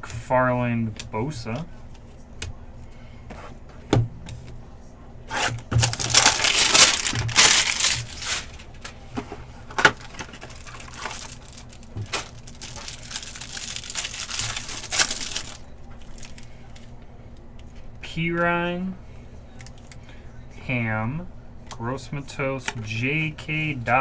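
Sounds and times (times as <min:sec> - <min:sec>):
foil wrappers tearing and crinkling: 0:05.3 - 0:08.9, 0:09.8 - 0:16.9.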